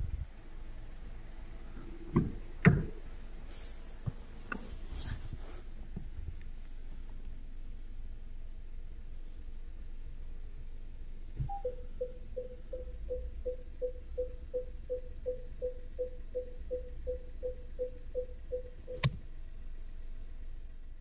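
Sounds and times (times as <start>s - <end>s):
parking sensor short beeps: 11.4s - 19.2s
sharp click: 18.9s - 19.2s.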